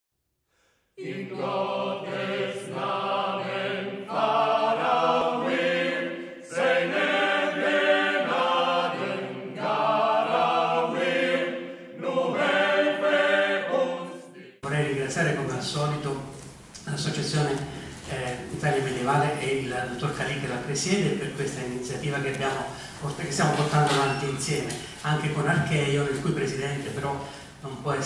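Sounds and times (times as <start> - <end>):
choir chanting long notes: 1.0 - 14.6.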